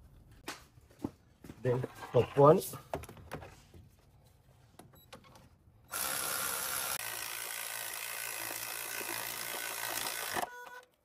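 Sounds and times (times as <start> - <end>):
handheld power tool running: 5.9 - 10.5.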